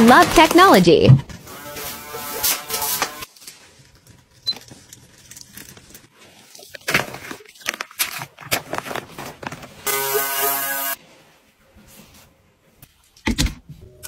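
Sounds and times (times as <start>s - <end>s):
plastic wrapping crinkling: 0.0s - 9.9s.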